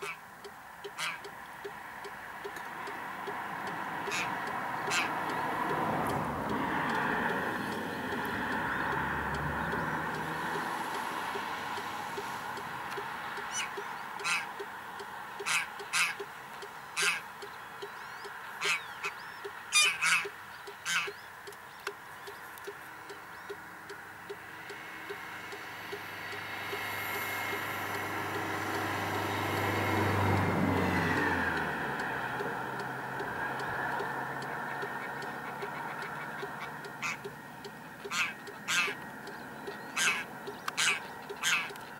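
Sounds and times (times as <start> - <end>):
waterfowl honking: 0.0 - 0.2, 0.9 - 1.3, 3.9 - 7.2, 13.3 - 14.7, 15.4 - 16.3, 16.9 - 21.2, 33.4 - 39.0, 39.7 - 41.9
rushing hum passing by: 1.4 - 15.2, 22.0 - 41.2.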